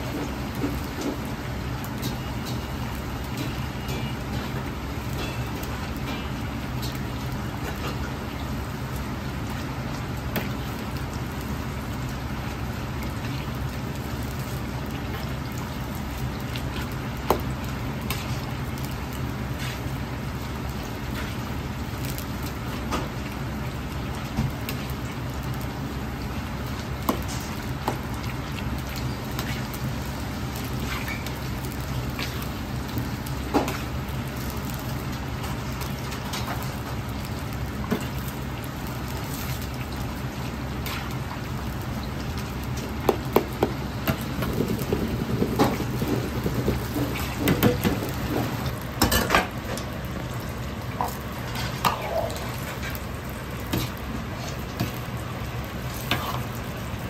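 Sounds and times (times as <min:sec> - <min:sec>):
chicken sizzling in hot oil: 0:00.0 - 0:57.0
gas burner rushing: 0:42.4 - 0:56.6.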